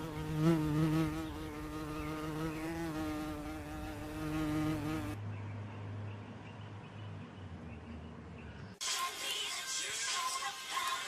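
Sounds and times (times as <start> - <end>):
flying insect buzzing: 0.0 - 5.2.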